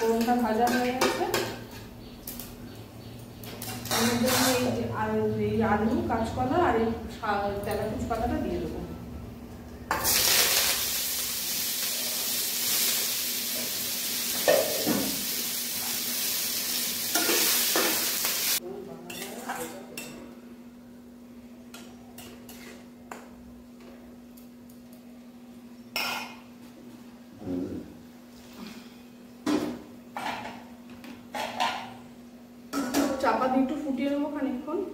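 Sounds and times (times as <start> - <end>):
vegetables sizzling in hot oil: 9.9 - 18.6.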